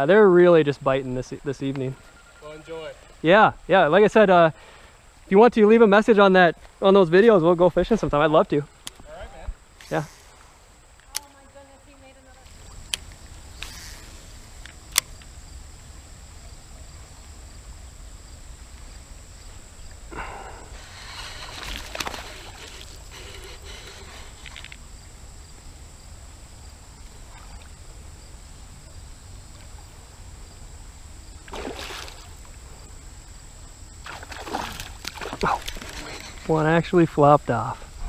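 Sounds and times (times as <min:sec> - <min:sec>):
faint high-pitched tone: 0:01.8 - 0:03.0
river water splashing: 0:20.2 - 0:24.9, 0:27.0 - 0:28.2, 0:31.4 - 0:32.6, 0:34.0 - 0:36.7.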